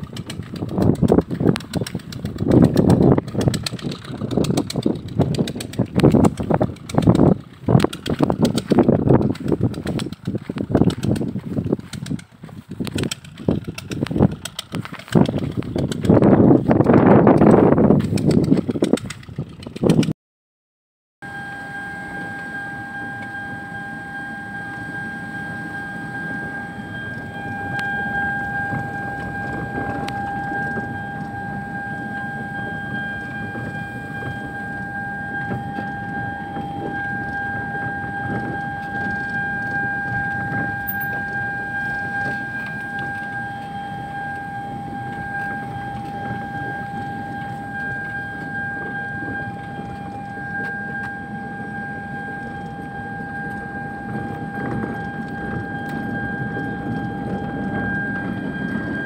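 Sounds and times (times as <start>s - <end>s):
car rumbling on dirt track: 0.0s - 20.1s, 22.0s - 59.0s
steady high-pitched tone: 21.2s - 59.0s.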